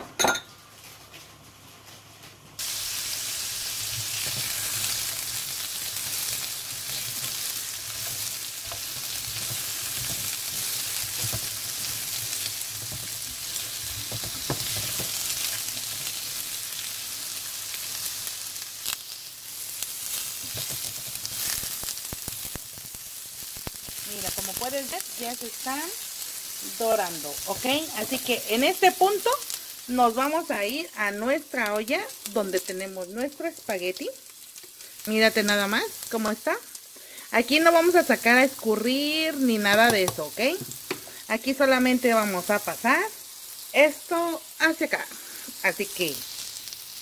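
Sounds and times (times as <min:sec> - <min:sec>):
vegetables sizzling in oil: 0:02.6 - 0:47.0
spatula scraping and tapping pan: 0:20.4 - 0:21.3.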